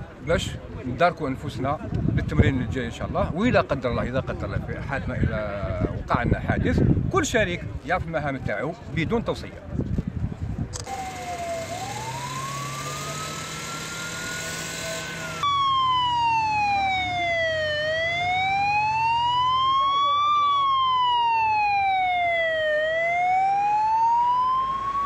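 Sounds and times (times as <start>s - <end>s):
emergency vehicle siren wailing: 10.8s - 25.0s.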